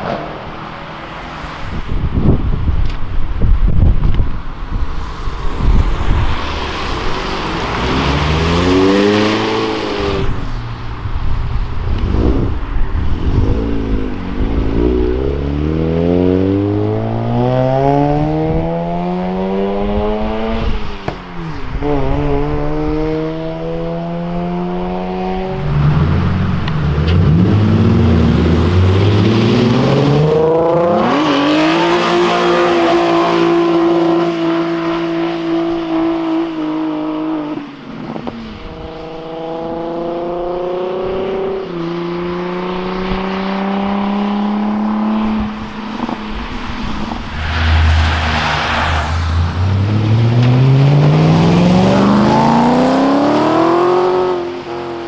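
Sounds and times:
sports cars accelerating: 4.4s - 55.0s
car engine revving: 5.3s - 10.8s, 22.0s - 36.2s, 38.8s - 55.0s.

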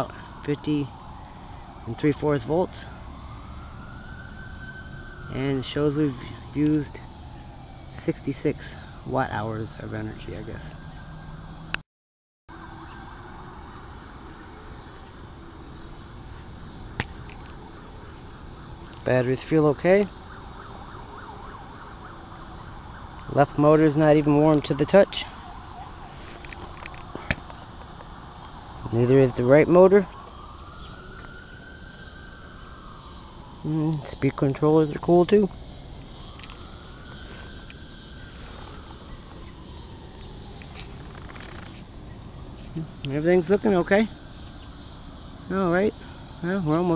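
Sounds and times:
faint steady tones: 0.0s - 11.8s, 12.5s - 46.9s
low outdoor rumble and hiss: 12.6s - 46.9s.

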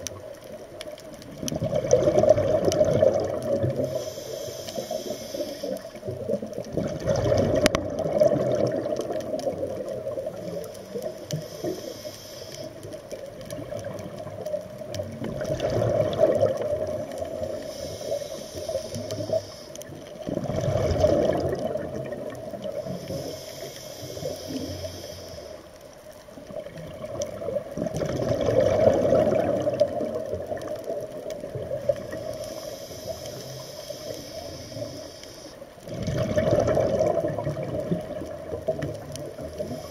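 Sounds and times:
bubbles gurgling on exhalation: 1.3s - 4.0s, 6.1s - 10.4s, 13.4s - 17.5s, 20.2s - 22.8s, 26.5s - 32.2s, 35.8s - 39.8s
regulator hissing inhalations: 3.8s - 6.1s, 10.3s - 12.8s, 17.3s - 20.0s, 22.7s - 25.7s, 32.1s - 35.6s, 39.4s - 39.9s.

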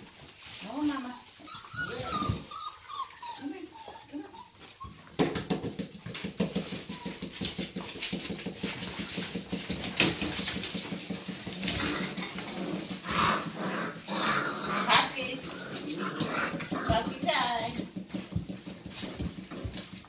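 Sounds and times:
puppy paws pattering on wooden floor: 0.0s - 20.0s
puppy whimpers: 1.4s - 5.2s, 6.7s - 7.5s.

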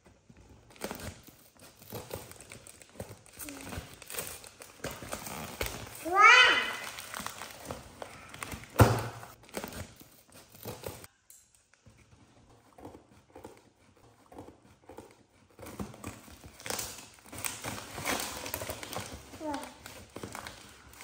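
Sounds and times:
cardboard and plastic crinkling: 0.2s - 11.1s, 15.4s - 21.0s
cardboard box tearing: 0.7s - 6.0s.

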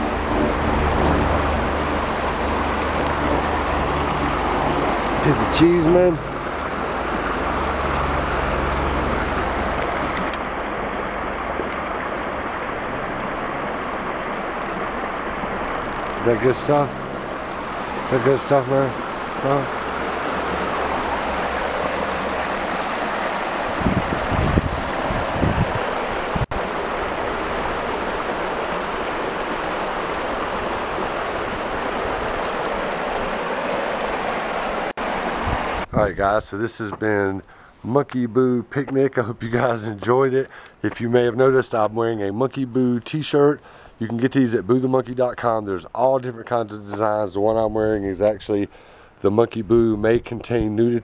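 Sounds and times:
low rumble: 0.0s - 5.3s
stream running over rocks: 0.0s - 37.9s, 38.6s - 47.5s.

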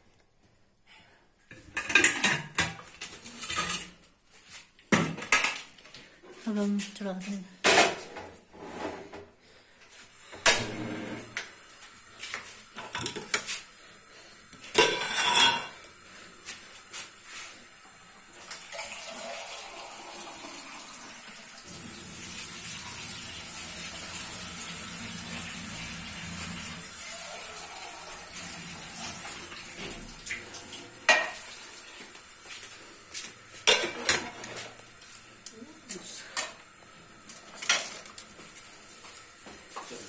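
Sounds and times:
metal pots clattering: 1.5s - 4.0s, 12.8s - 13.5s, 14.7s - 15.8s, 31.0s - 31.6s, 33.6s - 34.7s
kitchen tap running: 17.7s - 35.2s.

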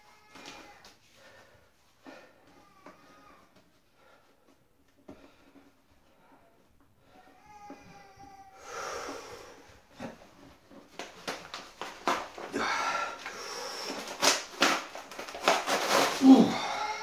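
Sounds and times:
paper rustling and creaking: 10.0s - 17.0s
phone book tearing: 13.9s - 16.5s.

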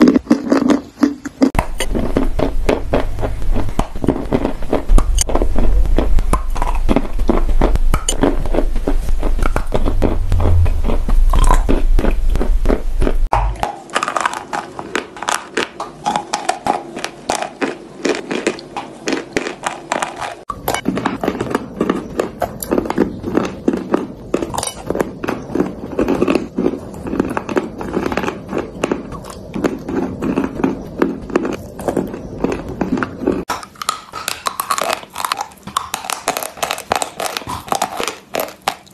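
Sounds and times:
crunchy chewing of clay: 0.0s - 38.9s
low hum: 1.6s - 13.6s.

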